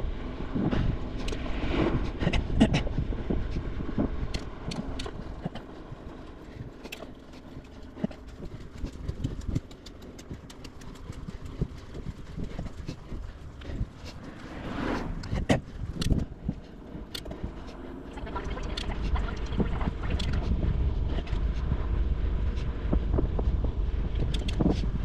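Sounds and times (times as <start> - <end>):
bicycle tyres rumbling on track: 0.0 - 25.0
bike clicks and rattles: 1.1 - 1.5, 2.1 - 14.5, 15.2 - 18.0, 19.9 - 20.5, 24.0 - 25.0.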